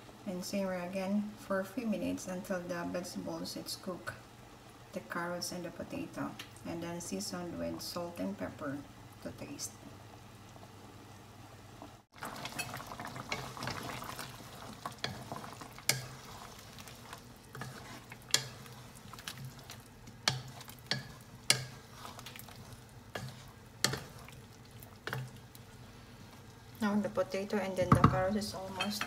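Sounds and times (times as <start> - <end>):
sauce sizzling: 8.8 - 28.8.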